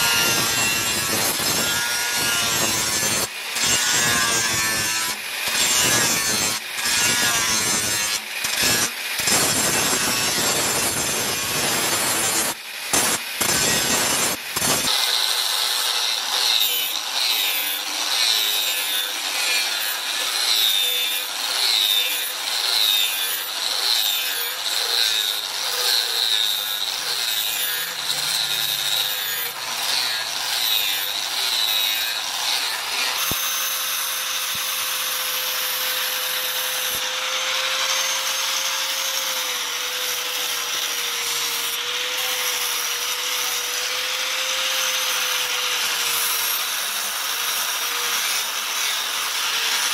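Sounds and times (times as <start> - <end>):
angle grinder grinding steel: 0.0 - 49.9.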